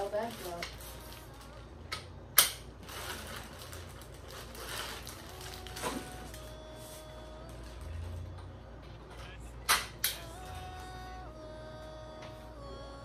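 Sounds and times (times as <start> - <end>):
plastic wrapping rustling: 0.0 - 1.8, 2.6 - 8.4.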